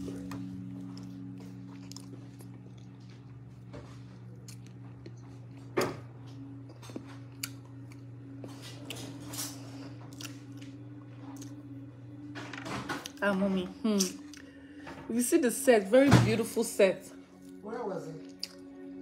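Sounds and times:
low hum: 0.0s - 17.7s
person chewing: 0.1s - 11.8s, 14.0s - 14.6s, 18.2s - 18.9s.

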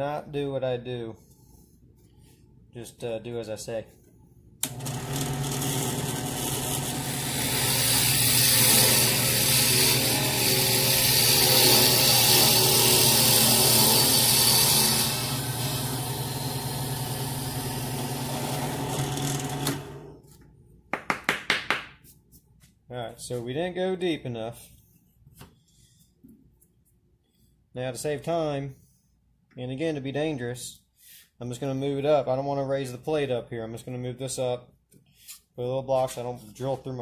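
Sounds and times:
drill bit boring into wood: 4.6s - 20.0s
drill press motor running: 4.6s - 20.1s
sharp knocks: 20.9s - 22.0s.

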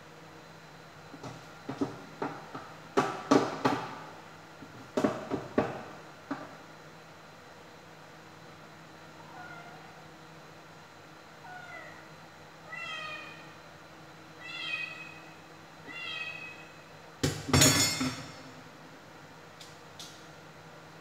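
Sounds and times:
cat meowing: 12.7s - 13.4s, 14.4s - 16.7s.

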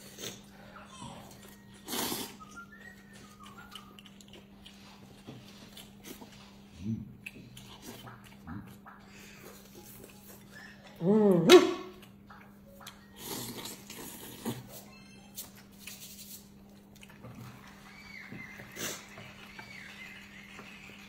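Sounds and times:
noodles slurped and chewed: 1.3s - 11.0s, 13.1s - 14.8s.

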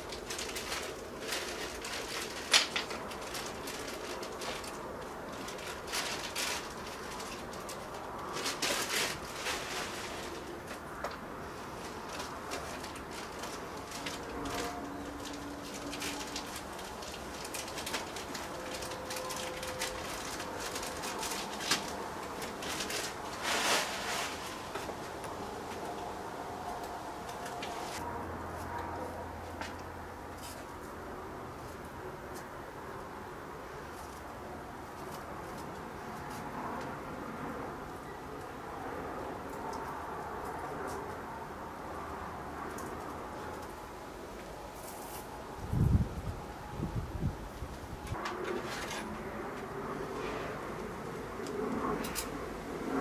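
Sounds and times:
plastic bag crinkling: 0.0s - 26.1s.

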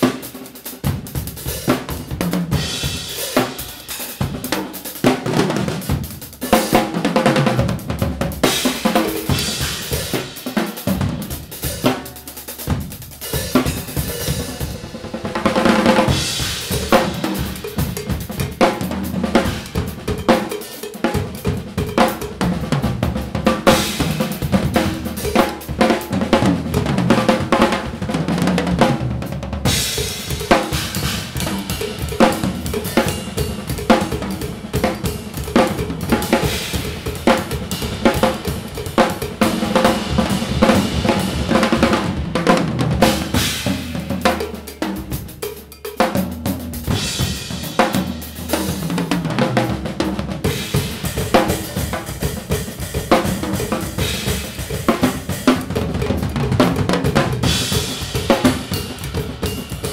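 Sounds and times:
drums: 0.0s - 59.9s
cymbals crashing: 13.3s - 22.5s.

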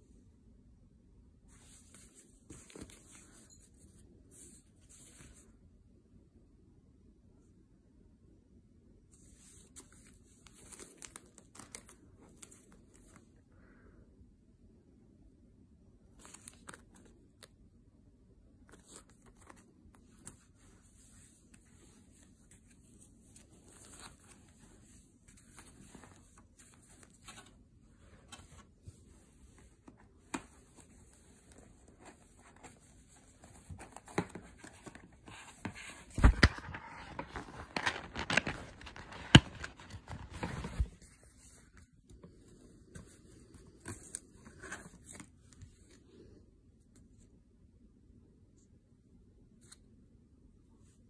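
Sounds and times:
plastic and cardboard crinkling: 9.6s - 13.2s, 28.2s - 41.5s.

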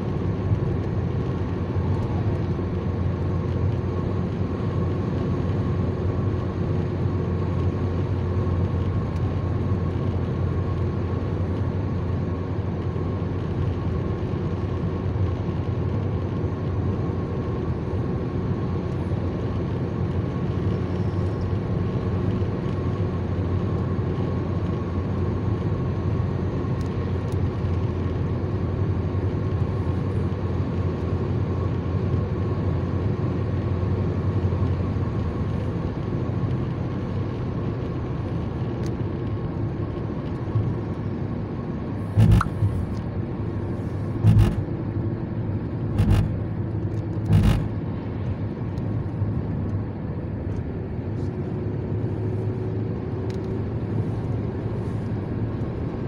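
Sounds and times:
car interior road drone: 0.0s - 56.0s.

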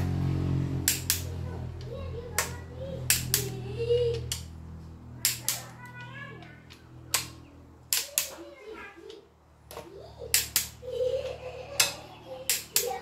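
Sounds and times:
torque wrench clicking: 0.8s - 1.3s, 3.1s - 3.5s, 4.1s - 4.5s, 10.3s - 10.8s.

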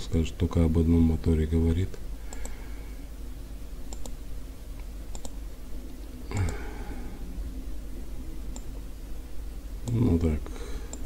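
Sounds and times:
steady low hum: 0.0s - 11.0s
computer mouse clicks: 2.3s - 2.6s, 3.9s - 4.2s, 4.8s - 5.4s, 6.3s - 6.6s, 8.5s - 8.7s.

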